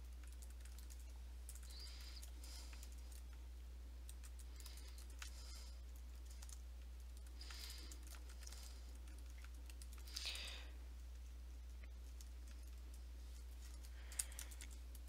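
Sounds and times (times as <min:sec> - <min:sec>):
computer keyboard typing: 0:00.0 - 0:03.4, 0:04.0 - 0:10.6, 0:13.6 - 0:15.0.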